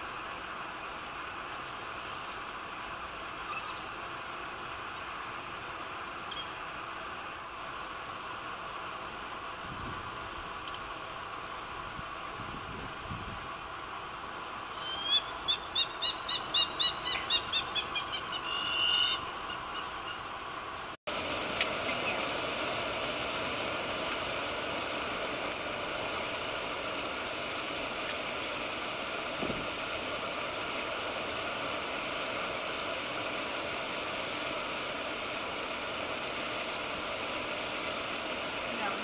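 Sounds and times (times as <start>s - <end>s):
outdoor bush ambience with hiss: 0.0s - 39.0s
high-pitched repeated calls: 14.7s - 20.3s.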